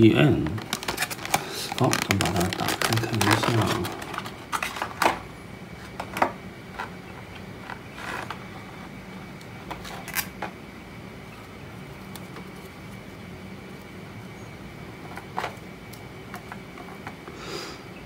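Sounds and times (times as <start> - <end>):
plastic rustle: 0.0 - 7.0, 7.6 - 8.8
faint steady hum: 0.0 - 18.0
stiff plastic clicks and crackles: 0.2 - 5.3.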